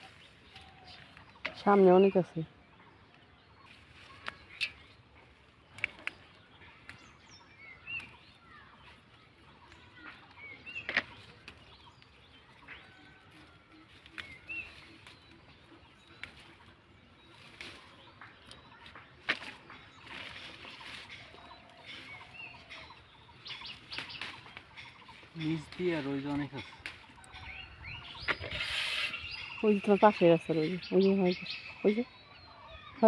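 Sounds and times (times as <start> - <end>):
leaves rustling: 0.0 - 2.4, 3.1 - 32.1
small birds chirping: 0.0 - 33.0
bean pods snapping: 4.0 - 4.9, 5.6 - 7.2, 7.9 - 8.3, 14.0 - 16.6, 17.4 - 22.9, 23.5 - 25.0, 26.6 - 27.4.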